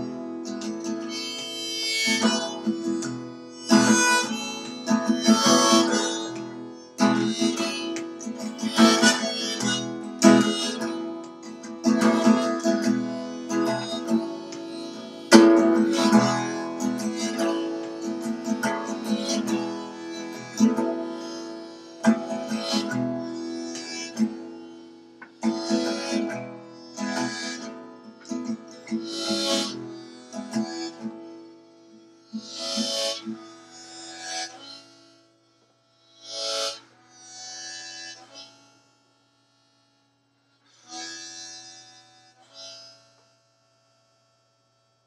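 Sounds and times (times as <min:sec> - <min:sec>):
harmonica phrases: 0:00.0 - 0:31.6
strummed acoustic guitar: 0:00.0 - 0:34.2.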